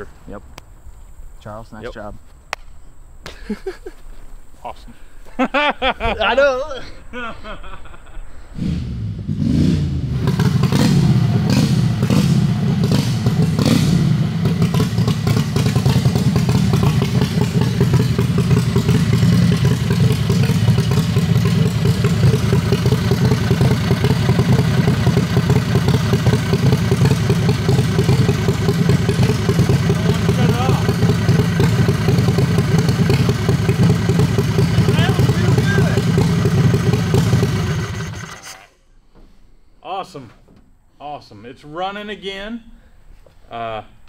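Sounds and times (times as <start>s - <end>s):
engine starting and revving: 8.5s - 38.8s.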